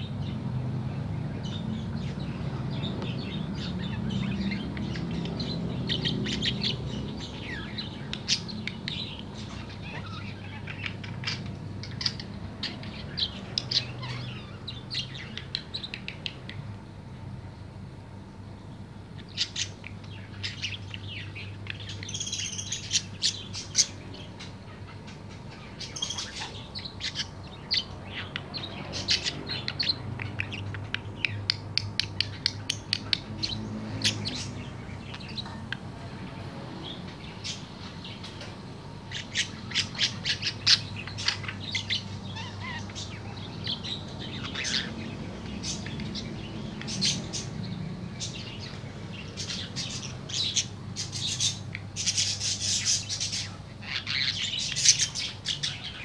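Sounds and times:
budgerigar chattering and warbling: 39.0 - 46.2.

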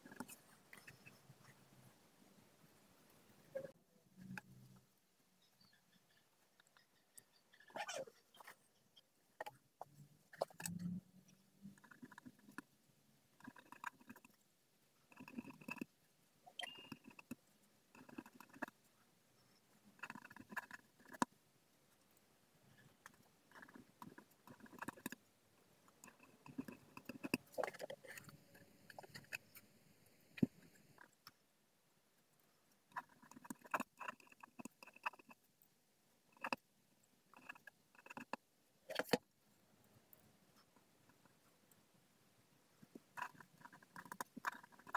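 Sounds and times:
ballpoint pen writing on paper: 11.8 - 12.7, 13.4 - 14.4, 15.1 - 15.9, 16.6 - 18.8, 20.0 - 21.3, 23.0 - 25.2, 26.0 - 29.6, 43.2 - 44.9.

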